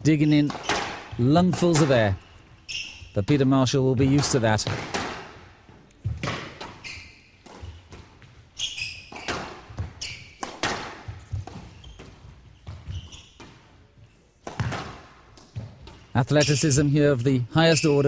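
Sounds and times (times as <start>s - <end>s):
shoes squeaking on court floor: 0.0s - 18.0s
racket striking ball: 0.4s - 2.0s, 4.0s - 5.4s, 6.0s - 6.8s, 7.4s - 8.3s, 9.1s - 13.7s, 14.4s - 16.1s
squash ball cracks off walls: 4.1s - 5.3s, 9.1s - 11.6s, 14.4s - 15.0s.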